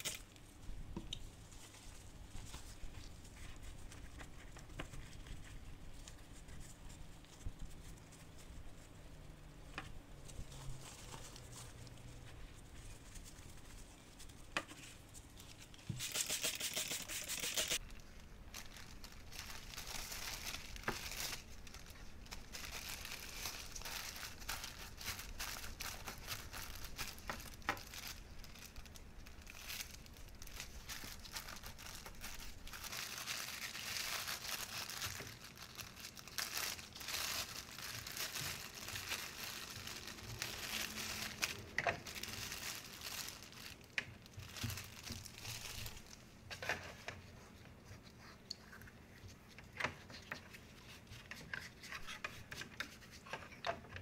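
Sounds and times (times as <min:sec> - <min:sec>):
plastic film crinkling: 0:00.0 - 0:00.4, 0:10.2 - 0:12.3, 0:15.9 - 0:47.0
spray bottle squirts: 0:16.0 - 0:17.8.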